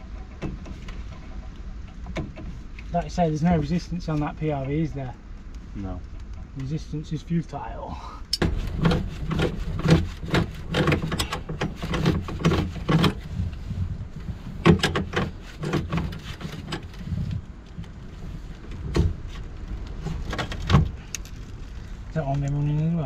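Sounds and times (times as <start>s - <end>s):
low steady hum: 0.0s - 23.0s
hand tools clicking on pipes: 8.3s - 13.2s.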